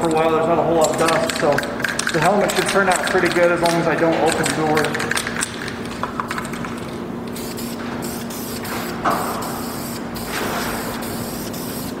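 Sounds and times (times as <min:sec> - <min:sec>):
aerosol spray can hissing: 0:07.4 - 0:12.0.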